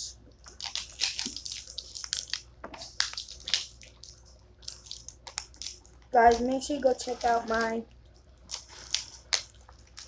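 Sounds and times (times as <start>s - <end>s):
plastic packaging clicks and crinkles: 0.4s - 7.7s.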